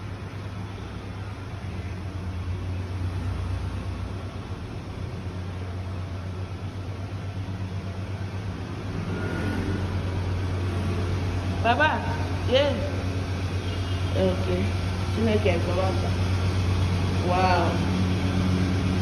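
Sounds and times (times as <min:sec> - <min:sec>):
steady low hum: 0:00.0 - 0:19.0
even rushing noise: 0:07.6 - 0:13.5.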